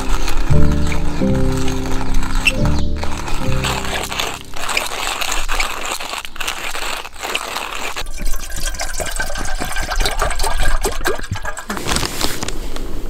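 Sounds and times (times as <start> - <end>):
water pouring into metal pot: 0.0 - 12.2.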